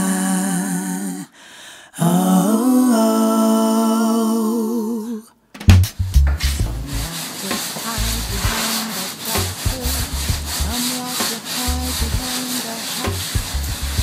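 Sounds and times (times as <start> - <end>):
soul music: 5.8 - 14.0
paintbrush scrubbing on canvas: 6.7 - 14.0.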